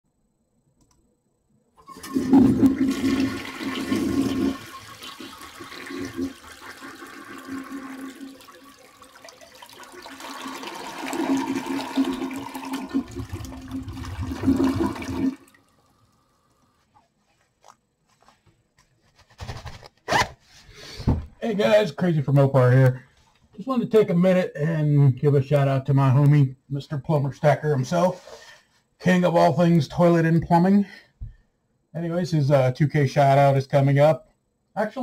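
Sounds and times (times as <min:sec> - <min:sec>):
toilet flushing: 0:01.8 - 0:16.6.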